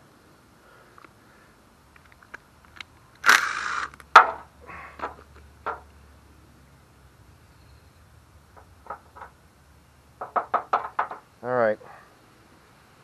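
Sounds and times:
small engine parts clattering: 8.6s - 9.4s, 10.2s - 11.3s.

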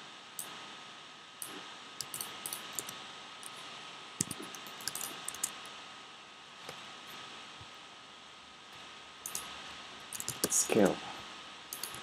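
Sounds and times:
faint steady hiss: 0.0s - 12.0s
keyboard and mouse clicking: 1.4s - 3.6s, 4.2s - 5.6s, 9.2s - 9.5s, 10.1s - 10.6s, 11.7s - 12.0s.

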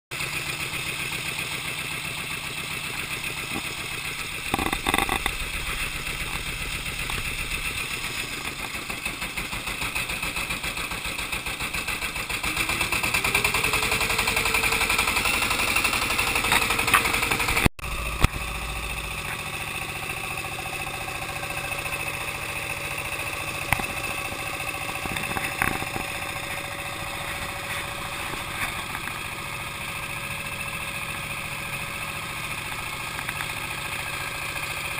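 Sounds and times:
boat engine running: 0.1s - 34.9s.

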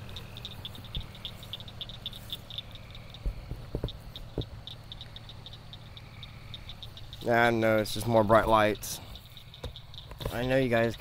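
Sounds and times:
crickets chirping: 0.0s - 11.0s
low steady hum: 0.0s - 11.0s
faint knocks: 3.2s - 4.6s.

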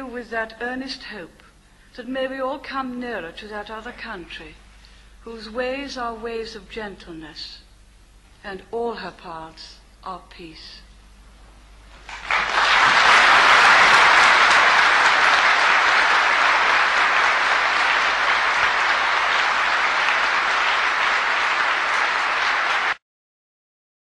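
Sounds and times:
large audience applauding: 12.0s - 23.0s.

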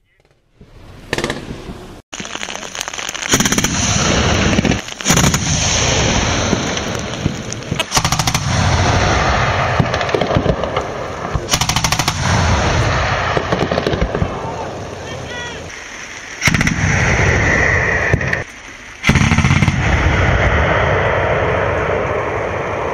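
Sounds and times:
cannon automatic fire bursts: 2.2s - 14.9s, 16.4s - 22.0s
loud rushing noise: 3.3s - 10.1s.

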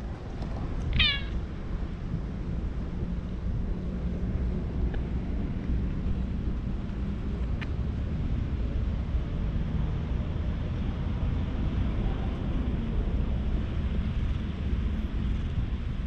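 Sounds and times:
low background rumble: 0.0s - 16.0s
cat meowing: 0.9s - 1.4s.

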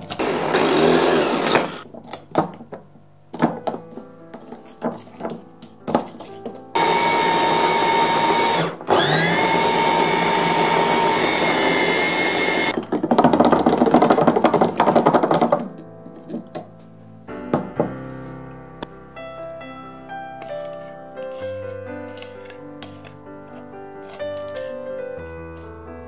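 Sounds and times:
mini chopper motor whining: 6.8s - 12.7s.

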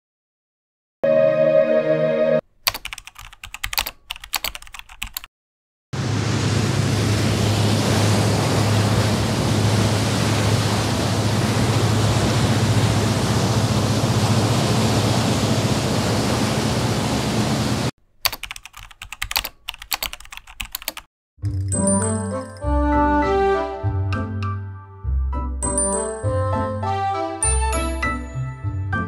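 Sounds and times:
keyboard typing clicks: 2.6s - 5.3s, 18.2s - 21.1s
loud steady rushing noise: 6.0s - 17.9s.

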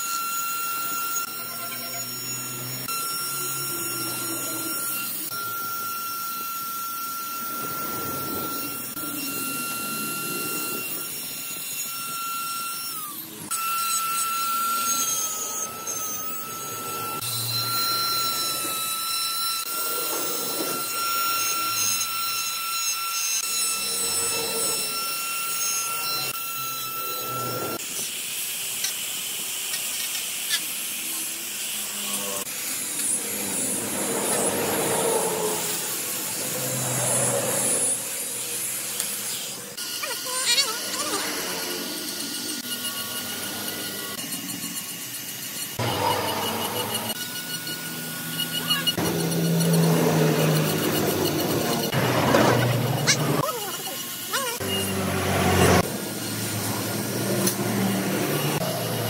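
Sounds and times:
angle grinder sanding wood: 0.0s - 59.0s
die grinder grinding wood: 0.0s - 59.0s.

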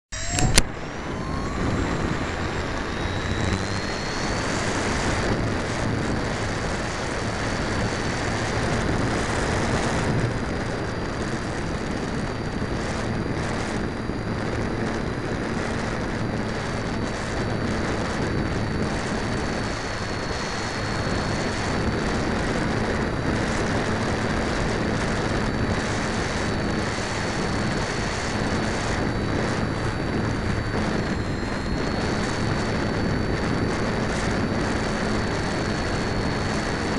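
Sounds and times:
electric motor and propeller whine: 0.0s - 36.9s
wind rushing on microphone: 0.1s - 36.9s.

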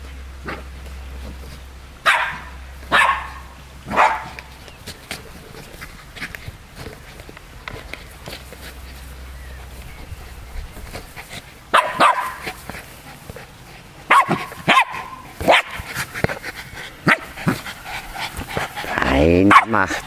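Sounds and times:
dogs barking: 2.0s - 4.5s, 11.7s - 12.6s, 14.0s - 16.0s, 17.0s - 20.0s.

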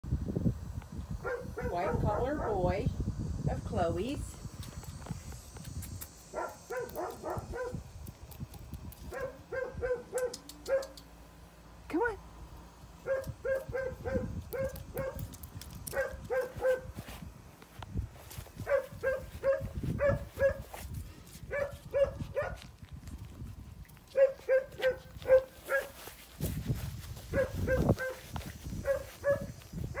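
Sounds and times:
dog barking: 1.2s - 2.7s, 6.3s - 7.8s, 9.1s - 11.0s, 13.0s - 15.3s, 15.9s - 16.9s, 18.6s - 20.7s, 21.5s - 22.6s, 24.1s - 26.0s, 27.3s - 28.2s, 28.8s - 30.0s.

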